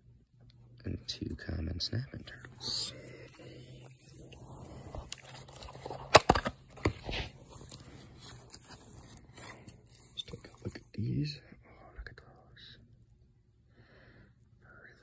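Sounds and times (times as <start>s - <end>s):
plastic clicks and rustling: 5.0s - 7.9s
plastic cup lid cracking: 5.1s - 7.3s.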